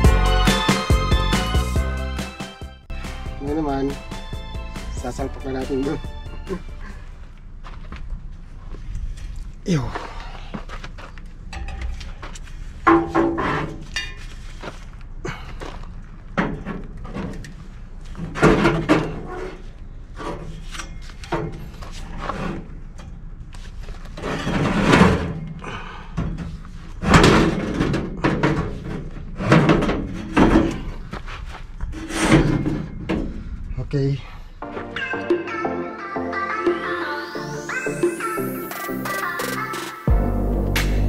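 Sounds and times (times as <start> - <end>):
metal knocks and clanks: 11.4 - 14.2, 26.2 - 31.0, 31.9 - 33.6.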